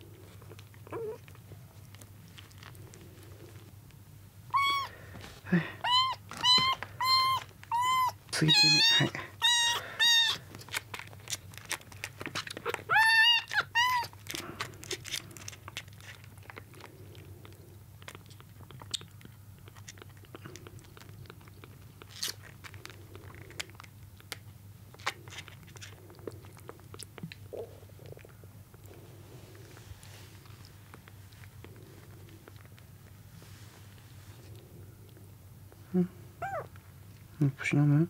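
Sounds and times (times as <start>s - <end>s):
kitten mewing: 4.5s - 10.8s, 12.3s - 15.2s, 36.0s - 36.8s
kitten suckling at bottle: 5.9s - 29.7s.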